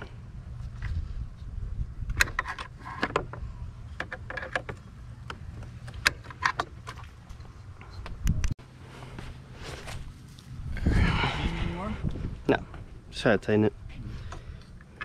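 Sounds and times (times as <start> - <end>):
low rumble: 9.2 - 14.8.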